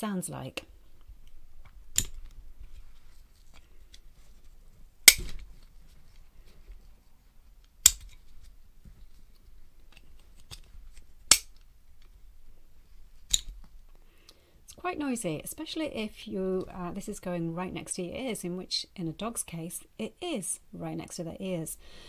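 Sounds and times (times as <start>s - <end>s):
plastic buckle clicking: 1.6s - 2.4s, 7.7s - 8.2s, 9.9s - 11.7s, 13.2s - 13.7s.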